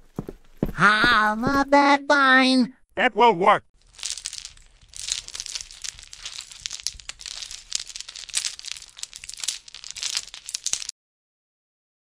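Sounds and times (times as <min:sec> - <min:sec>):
crinkling and rustling: 0:03.8 - 0:10.9.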